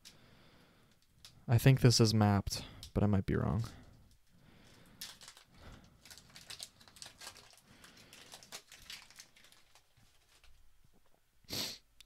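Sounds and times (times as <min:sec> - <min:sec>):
foil wrapper crinkling: 0:04.6 - 0:10.6.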